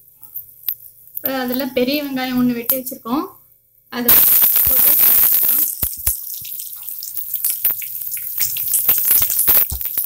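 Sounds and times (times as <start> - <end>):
onions sizzling in hot oil: 4.1 - 10.0
oil crackling: 4.2 - 10.0.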